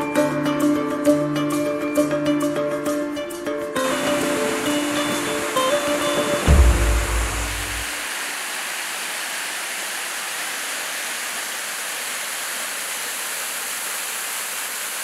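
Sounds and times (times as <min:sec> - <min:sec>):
low musical tone: 0:03.8 - 0:08.0
waterfall crashing onto rock: 0:03.8 - 0:15.0.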